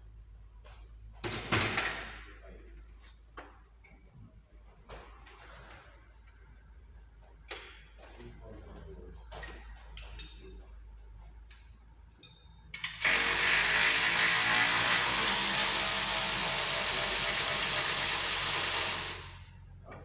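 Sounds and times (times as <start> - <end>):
metal tools clicking and clinking: 9.4 - 10.6, 11.5 - 13.0
power tool running: 12.9 - 19.6.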